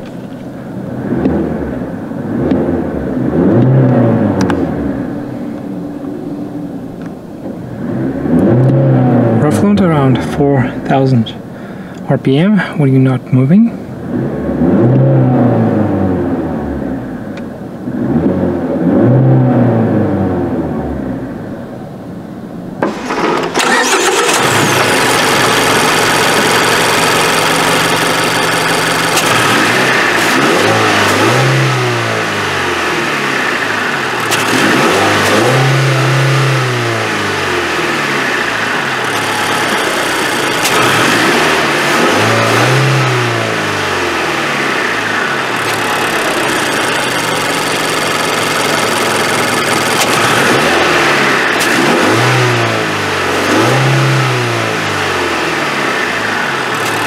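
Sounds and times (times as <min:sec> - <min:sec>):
car engine revving: 0:00.0 - 0:11.8, 0:13.8 - 0:21.8, 0:22.6 - 0:57.0.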